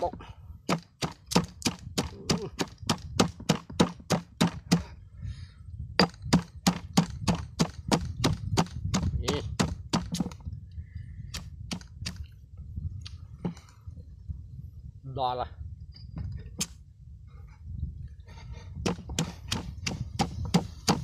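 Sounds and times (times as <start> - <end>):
stone pestle pounding in mortar: 0.7 - 4.8, 6.0 - 10.3.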